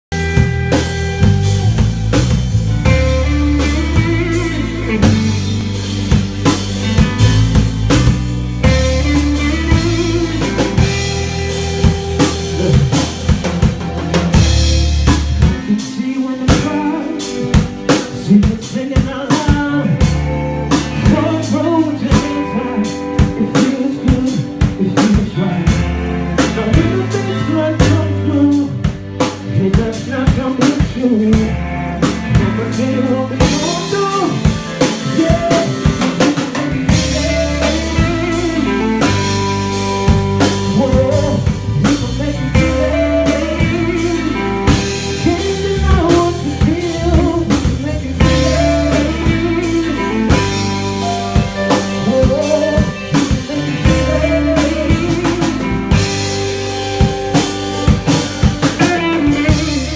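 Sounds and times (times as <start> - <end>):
drum kit: 0.0 - 59.9
electric guitar: 0.1 - 59.9
keyboards: 0.1 - 59.9
deep sustained bass line: 0.2 - 15.5.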